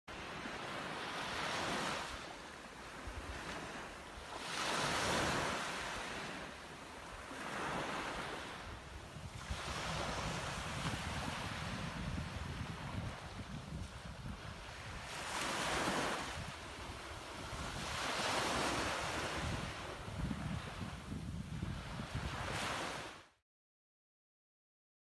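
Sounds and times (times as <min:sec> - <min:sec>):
waves washing up beach: 0:00.1 - 0:23.4
wind rumbling on microphone: 0:07.2 - 0:23.2.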